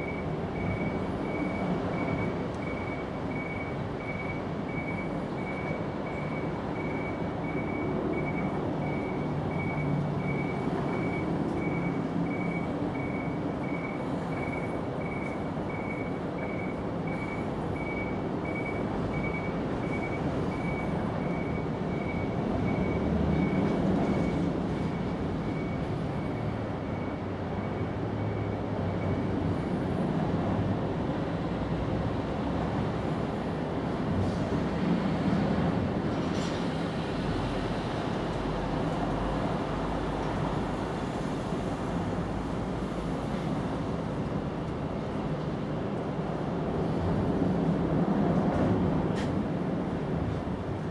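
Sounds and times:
reversing alarm beeping: 0.0s - 29.8s.

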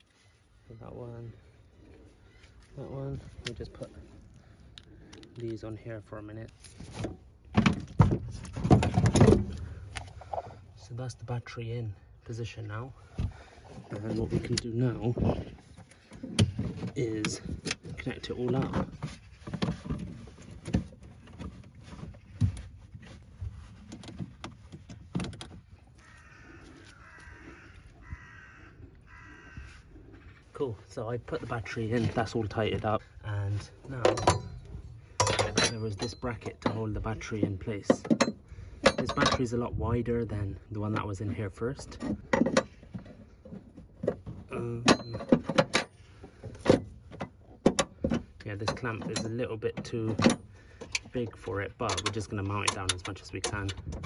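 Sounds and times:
metal clicks and knocks: 7.0s - 10.1s, 23.8s - 25.7s, 33.9s - 39.7s, 41.8s - 54.0s
rough animal calls: 25.6s - 30.9s
metal bracket clinking: 34.0s - 37.0s.

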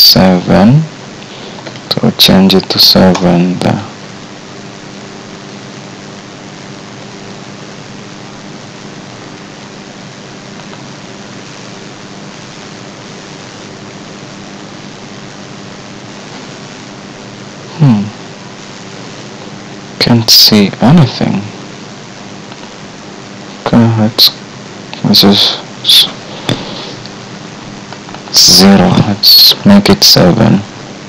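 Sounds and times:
faint low hum: 0.0s - 31.0s
microphone hiss: 0.0s - 31.0s
voiced murmur: 17.7s - 18.2s.

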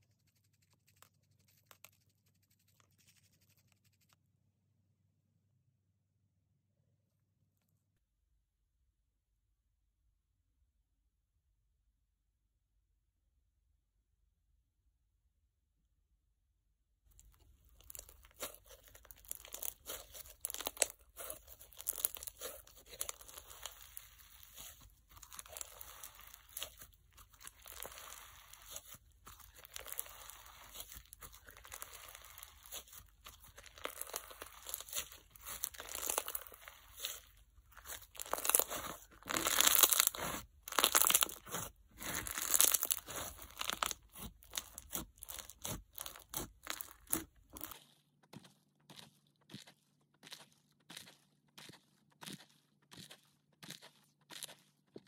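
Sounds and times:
slime crackling when squeezed: 17.8s - 47.7s.

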